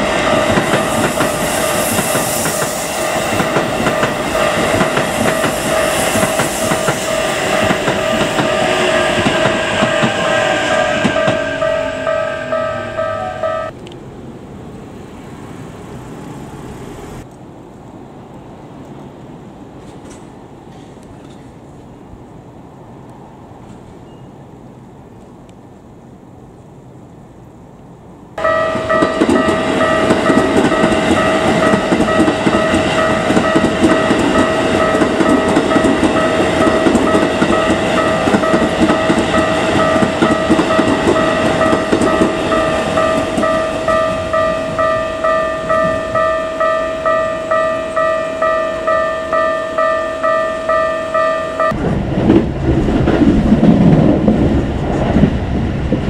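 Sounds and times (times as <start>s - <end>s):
train rumbling over crossing: 0.0s - 17.3s, 18.0s - 25.0s, 28.0s - 56.0s
level crossing bell chiming: 11.2s - 13.7s, 28.4s - 51.8s.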